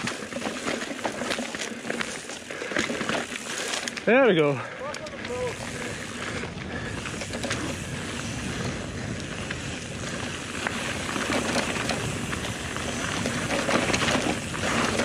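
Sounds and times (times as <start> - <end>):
tyres crunching over stones: 0.0 - 7.9
bike rattling over rocks: 0.0 - 15.0.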